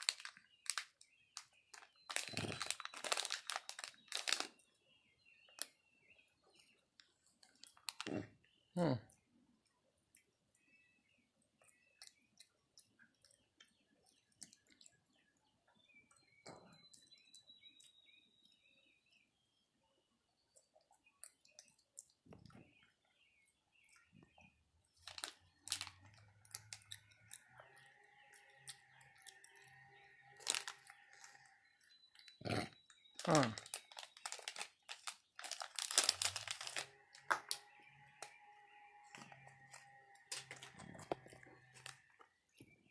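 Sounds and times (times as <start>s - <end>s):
plastic pouch crinkling: 0.0s - 4.6s, 25.0s - 27.0s, 30.4s - 31.4s, 33.2s - 37.6s, 39.1s - 42.0s.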